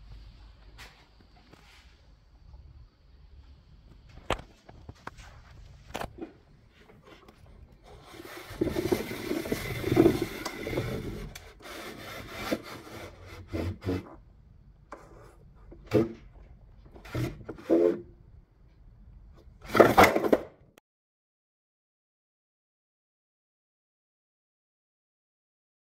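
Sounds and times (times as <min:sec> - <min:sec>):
scraping rustle: 0:04.5 - 0:14.1.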